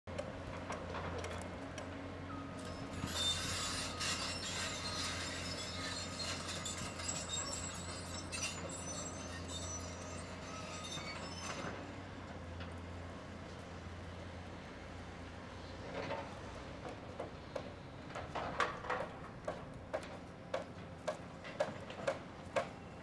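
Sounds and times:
metallic squealing and scraping: 0:02.4 - 0:12.1.

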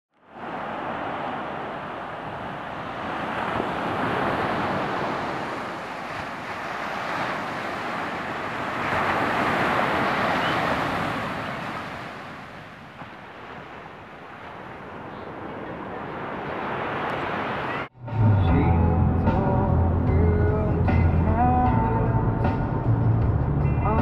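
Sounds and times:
ocean surf washing on beach: 0:00.2 - 0:17.9.

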